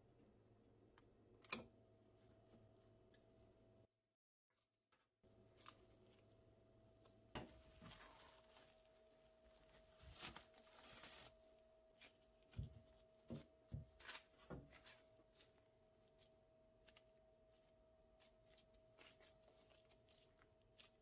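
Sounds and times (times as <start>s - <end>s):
rustling and crinkling: 4.6s - 6.4s, 7.0s - 21.0s.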